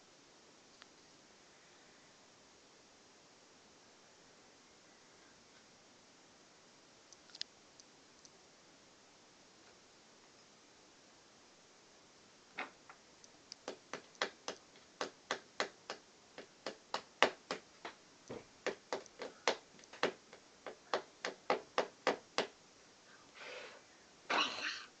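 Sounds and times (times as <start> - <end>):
toy hammer tapping nails: 13.6 - 18.0, 18.6 - 22.6.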